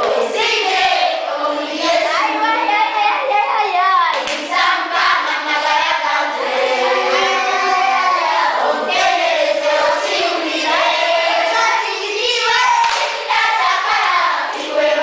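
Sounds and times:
choir singing: 0:00.0 - 0:02.8, 0:04.3 - 0:15.0
hand clapping: 0:04.1 - 0:04.6, 0:12.4 - 0:14.7.

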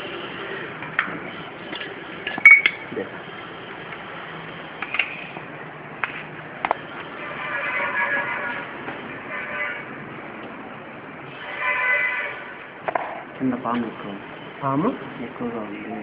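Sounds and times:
steady background noise: 0:00.0 - 0:16.0.

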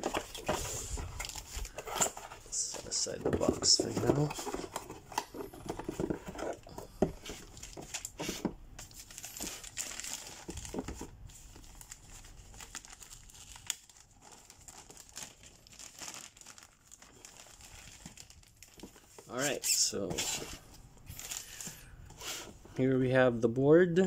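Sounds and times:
plastic bag crinkling: 0:08.9 - 0:19.4.

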